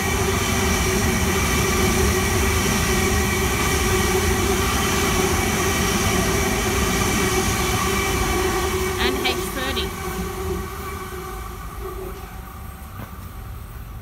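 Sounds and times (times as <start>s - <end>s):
electric train running: 0.0s - 14.0s.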